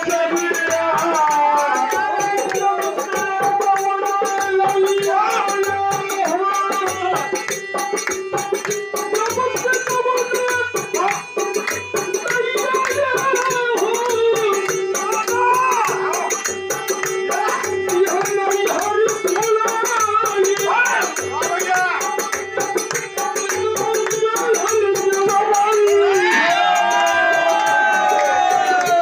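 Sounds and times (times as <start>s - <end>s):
men singing folk song: 0.0s - 7.4s
hand drum beat: 0.0s - 29.0s
harmonium drone: 0.0s - 29.0s.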